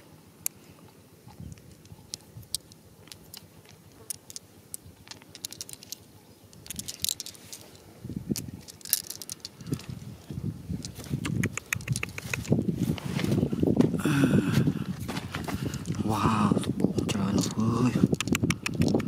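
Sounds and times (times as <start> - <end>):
glass marbles clicking together: 4.1 - 7.8, 8.4 - 9.9
soil scraping and crumbling: 11.9 - 17.6.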